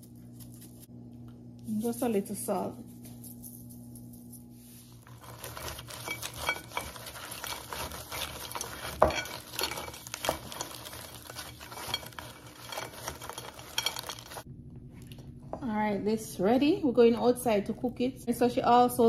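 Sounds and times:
crab shells clicking in glass bowl: 5.2 - 14.4.

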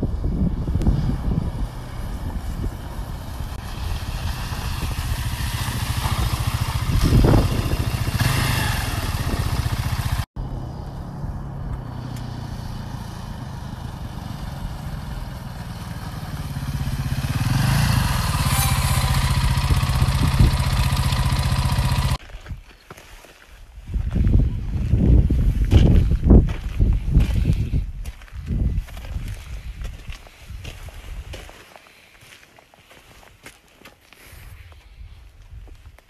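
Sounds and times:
dirt bike engines: 0.0 - 22.2.

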